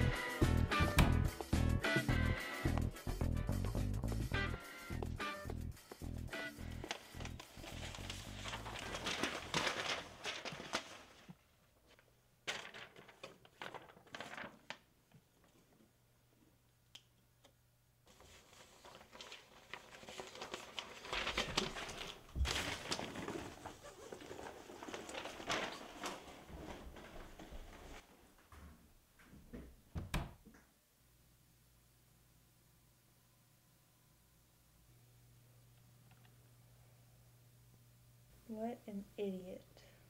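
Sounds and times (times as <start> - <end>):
paper rustling and crinkling: 6.4 - 15.8, 18.0 - 28.1.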